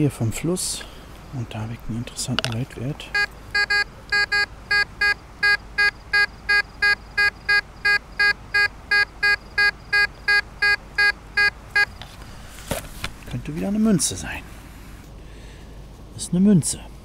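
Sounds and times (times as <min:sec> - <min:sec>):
metal detector beeping: 0:02.4 - 0:12.0.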